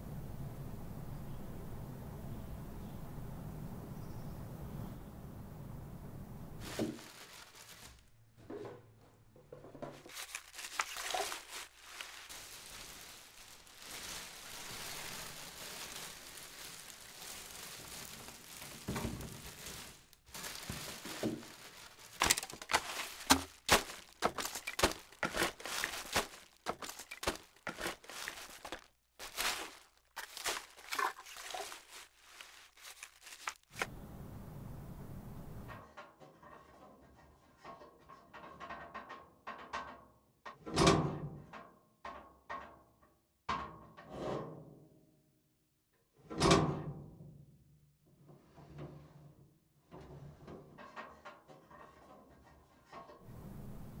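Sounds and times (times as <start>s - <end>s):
plastic crinkling and crackling: 6.6s - 8.2s, 9.8s - 33.9s.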